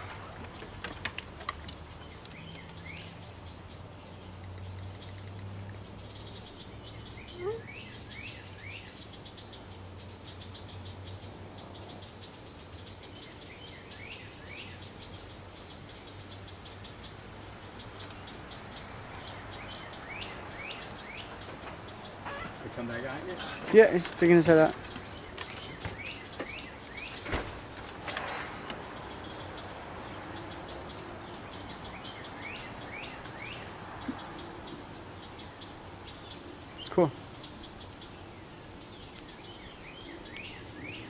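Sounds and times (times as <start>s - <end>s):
bird chirps: 0.0s - 41.0s.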